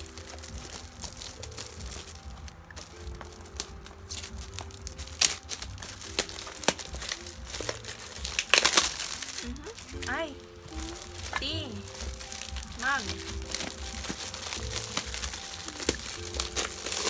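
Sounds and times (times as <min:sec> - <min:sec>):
wrapping paper crinkling: 0:00.0 - 0:17.0.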